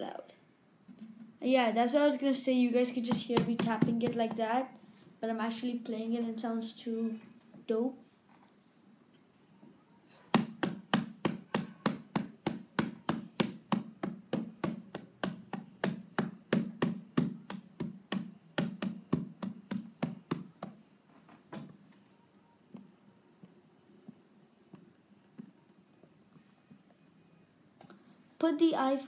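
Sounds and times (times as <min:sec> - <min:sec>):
fingers tapping controller pads: 0:10.3 - 0:20.8.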